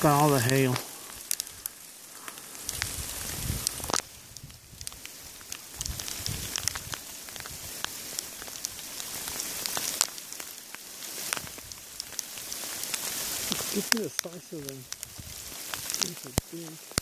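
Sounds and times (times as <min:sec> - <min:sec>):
hailstones falling on gravel: 0:00.0 - 0:17.0.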